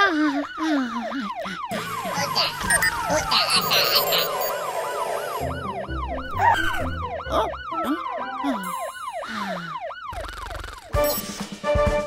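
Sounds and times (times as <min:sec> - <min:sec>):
cartoon siren wailing: 0:00.0 - 0:11.0
cartoon sound effects: 0:01.7 - 0:04.8, 0:05.4 - 0:09.2, 0:10.1 - 0:11.0.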